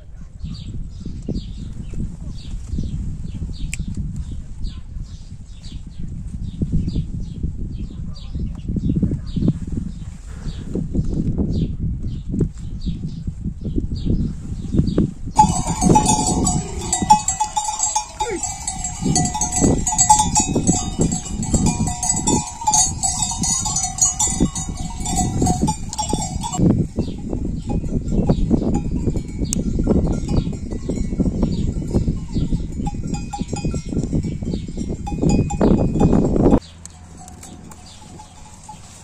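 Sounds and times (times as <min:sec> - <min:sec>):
animal bells jingling: 0:15.4 - 0:39.0
low thumps and shuffling: 0:15.4 - 0:39.0.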